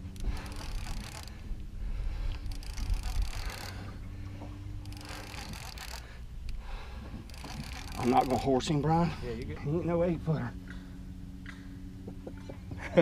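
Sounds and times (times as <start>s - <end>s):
fishing reel whirring and clicking: 0.0s - 9.4s.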